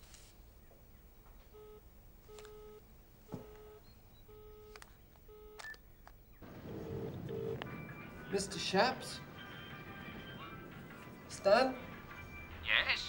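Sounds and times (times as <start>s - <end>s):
telephone ringing beeps: 1.5s - 4.7s, 5.3s - 5.8s, 6.4s - 11.2s.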